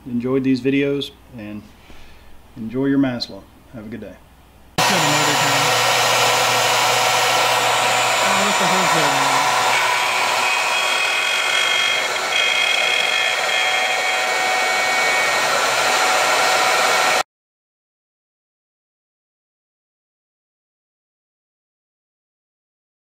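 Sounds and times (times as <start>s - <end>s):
router cutting wood: 4.8s - 17.2s.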